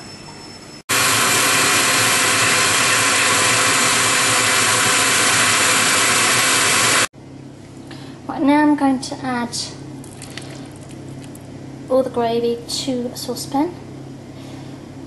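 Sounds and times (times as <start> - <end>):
blender running: 0.9 - 7.1.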